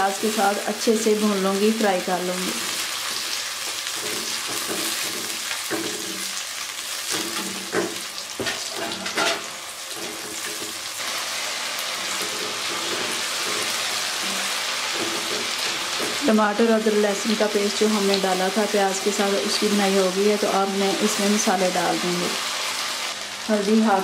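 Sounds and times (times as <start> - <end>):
onions sizzling in oil: 0.0 - 24.0
spatula scraping and knocking pan: 3.0 - 6.3, 7.1 - 10.9, 11.8 - 16.3.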